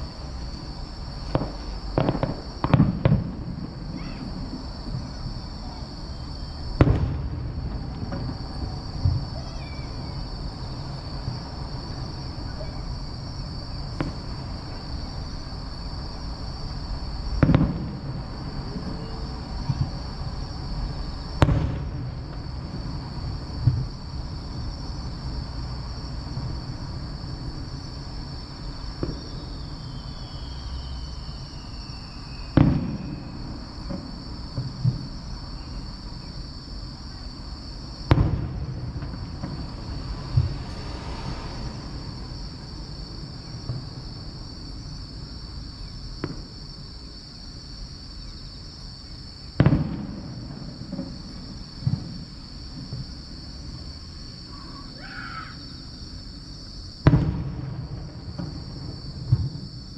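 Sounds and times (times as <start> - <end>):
small firework pops: 0.0 - 10.3, 13.8 - 14.9, 17.3 - 20.2, 20.8 - 24.1, 28.9 - 30.8, 31.7 - 36.4, 38.0 - 42.3, 43.5 - 44.3, 46.1 - 46.8, 49.5 - 53.2, 57.0 - 59.9
firework booms with echo: 0.0 - 15.2, 16.6 - 24.8, 28.9 - 30.1, 31.8 - 36.4, 37.9 - 44.5, 46.1 - 46.7, 49.6 - 53.2, 57.0 - 59.9.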